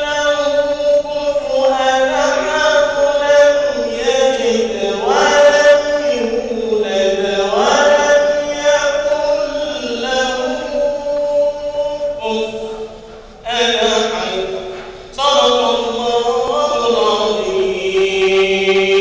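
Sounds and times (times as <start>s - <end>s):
man chanting into microphone: 0.0s - 19.0s
steady tone: 18.0s - 19.0s.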